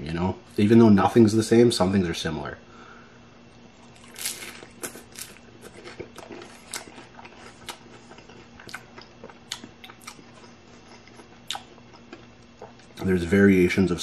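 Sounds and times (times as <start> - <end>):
crunchy taco shell bitten and chewed: 3.8 - 13.0.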